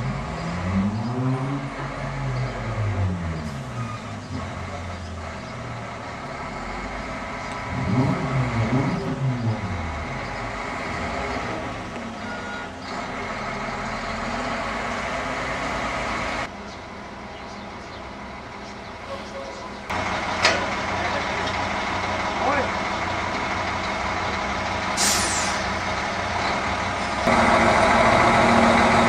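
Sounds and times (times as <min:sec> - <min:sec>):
diesel engine revving: 0:00.0 - 0:29.0.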